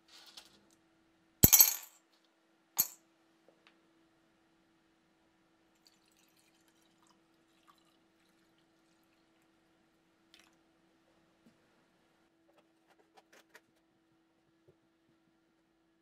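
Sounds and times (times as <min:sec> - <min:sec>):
liquid trickling into glass: 0:05.8 - 0:09.1.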